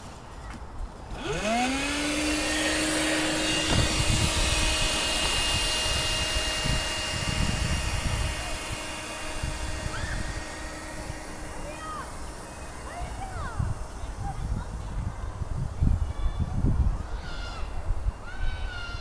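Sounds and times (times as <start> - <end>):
electric motor whining: 1.1 - 16.0.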